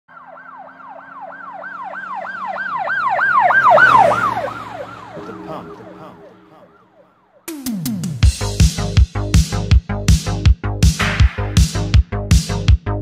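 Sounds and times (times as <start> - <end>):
emergency siren yelping: 0.1 - 7.8.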